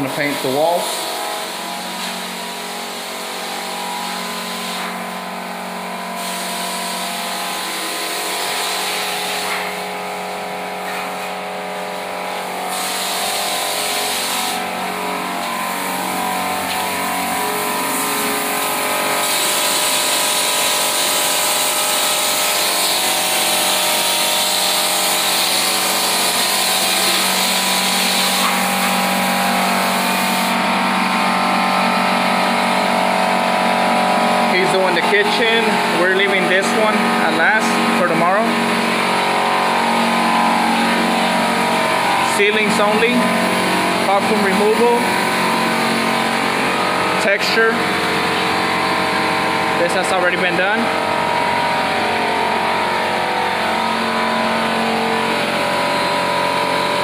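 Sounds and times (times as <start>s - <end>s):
machine humming: 0.0s - 57.0s
hiss: 12.7s - 13.4s.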